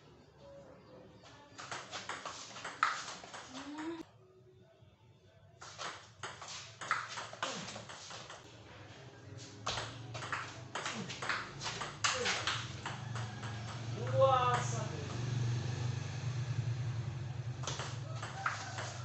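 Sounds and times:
table tennis ball clicking: 9.7 - 14.7, 17.6 - 18.9.

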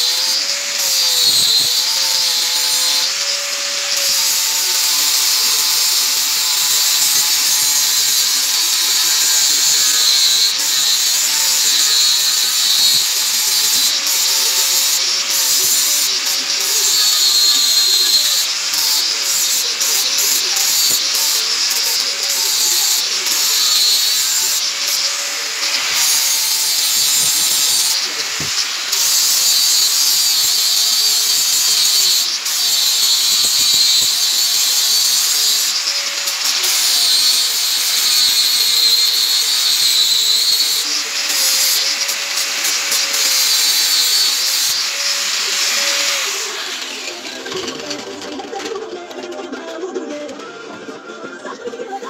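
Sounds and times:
angle grinder grinding metal: 0.0 - 52.0.

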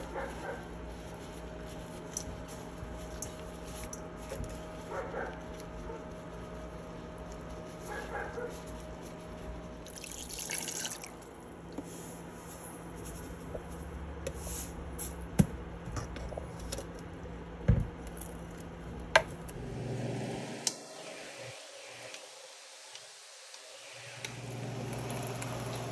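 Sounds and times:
crinkly rustle: 0.0 - 9.9
liquid dripping and sloshing: 9.8 - 11.4.

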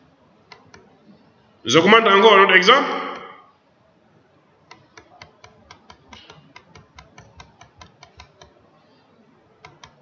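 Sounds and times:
keyboard typing: 0.5 - 0.9, 4.7 - 8.6, 9.5 - 10.0.

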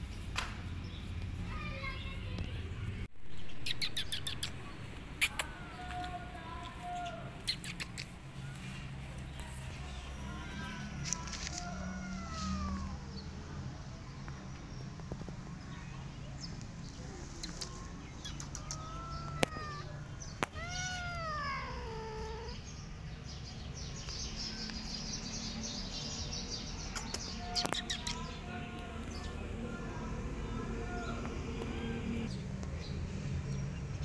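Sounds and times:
cats meowing: 10.2 - 13.1, 18.2 - 22.7
sharp clicks: 26.9 - 28.2.

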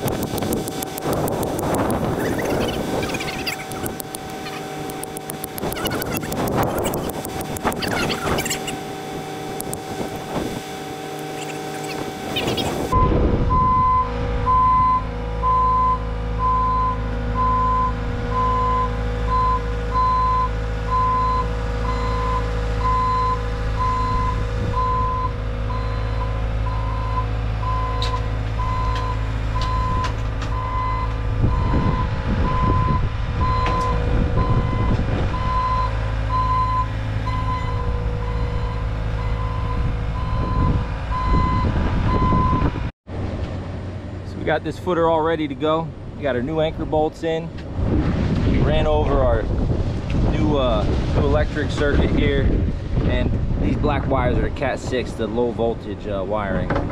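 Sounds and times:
diesel engine running: 0.0 - 56.9
backup alarm beeping: 11.2 - 42.7.

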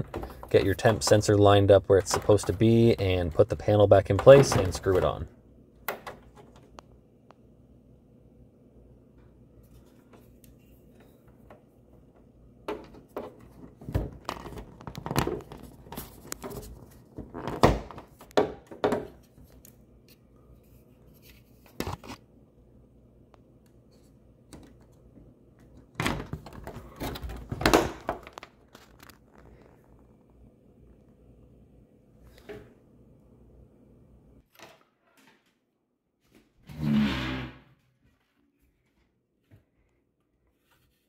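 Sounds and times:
plastic panels knocking and rattling: 0.0 - 6.7, 12.6 - 19.2, 25.9 - 28.6.

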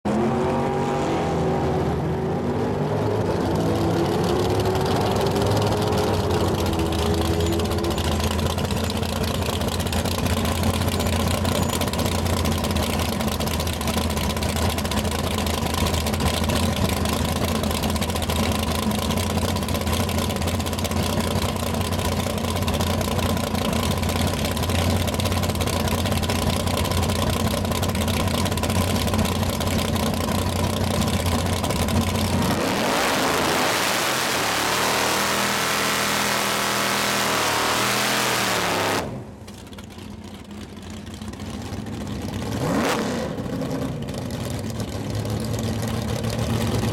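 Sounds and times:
car engine idling: 3.2 - 32.6, 36.4 - 46.9
engine revving: 31.6 - 39.4, 42.4 - 44.0.

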